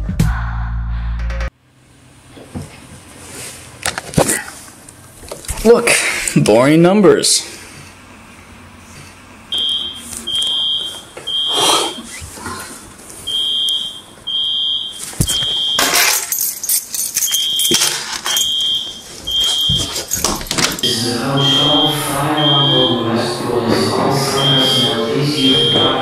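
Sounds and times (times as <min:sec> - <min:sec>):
fire alarm beeping: 0:09.5 - 0:12.1, 0:13.2 - 0:16.2, 0:17.2 - 0:26.0.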